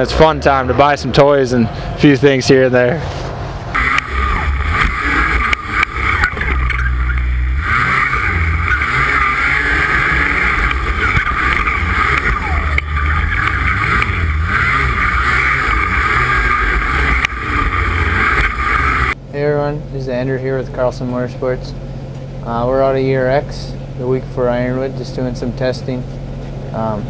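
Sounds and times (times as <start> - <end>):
track noise: 0.0 - 19.2
snowmobile engine revving: 3.8 - 19.2.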